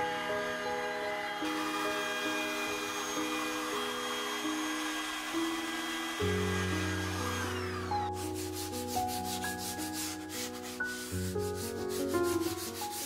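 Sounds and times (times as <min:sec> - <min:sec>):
router motor whine spinning down: 0:00.0 - 0:08.2
sandpaper rasping on wood: 0:05.4 - 0:13.0.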